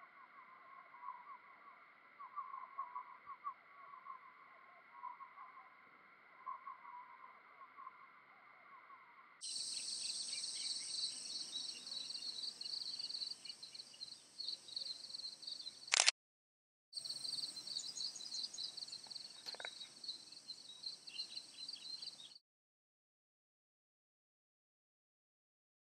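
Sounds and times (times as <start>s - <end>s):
faint chirping: 0.0s - 16.0s.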